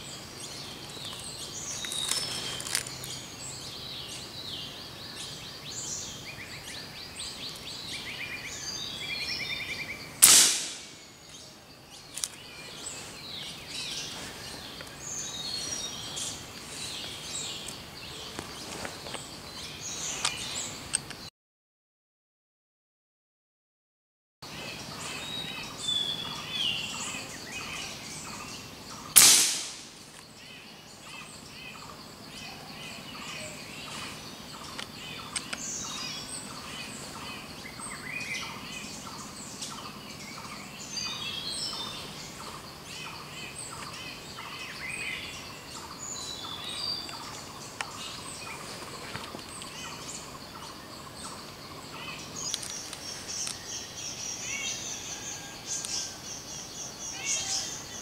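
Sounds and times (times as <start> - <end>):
birds chirping and calling: 0.0 - 21.3, 24.4 - 58.0
air rifle shot: 10.2 - 11.0, 29.2 - 30.0.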